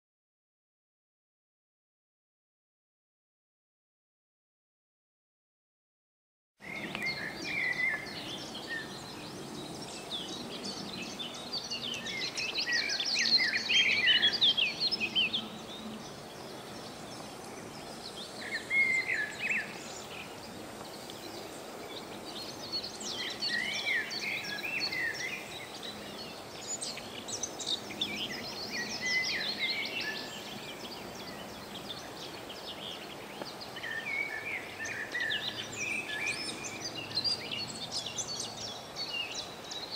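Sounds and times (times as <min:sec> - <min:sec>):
songbirds chirping: 0:06.6 - 0:39.9
steady outdoor hiss: 0:06.6 - 0:39.9.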